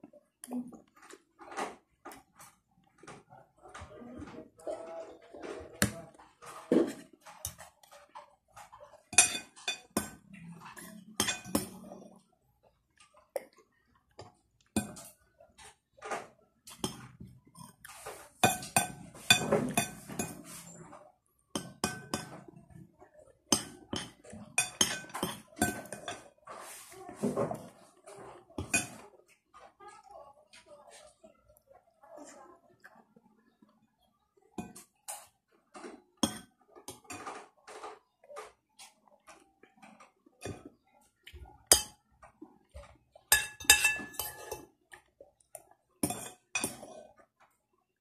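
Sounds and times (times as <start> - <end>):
cutlery clinking on plate: 5.8 - 11.8, 16.0 - 20.7, 23.5 - 27.6, 41.7 - 42.0, 42.8 - 44.7, 46.0 - 47.1.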